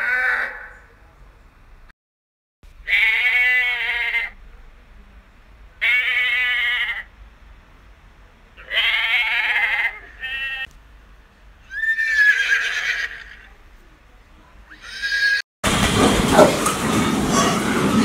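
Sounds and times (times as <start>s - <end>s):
goat bleating: 2.9s - 4.4s, 5.8s - 7.1s, 8.6s - 10.7s, 14.7s - 15.4s
horse whinnying: 11.7s - 13.5s.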